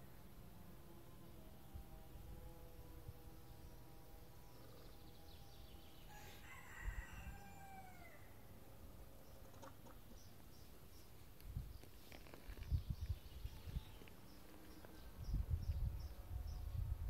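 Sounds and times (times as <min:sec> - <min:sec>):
rooster crowing: 0:06.1 - 0:08.4.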